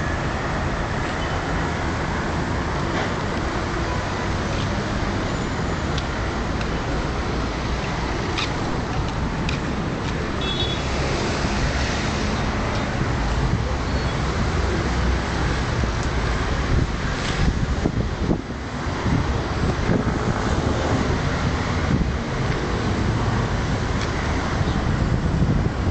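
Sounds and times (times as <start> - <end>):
city traffic: 0.0 - 25.9
wind on microphone: 15.7 - 25.9.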